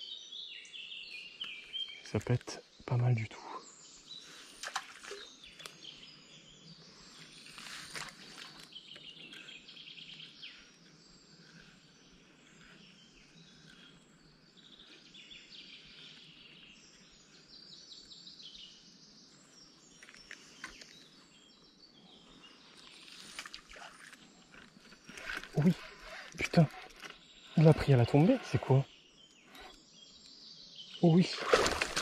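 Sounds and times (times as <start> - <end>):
songbirds chirping and trilling: 0.0 - 32.0
outdoor hush: 18.9 - 32.0.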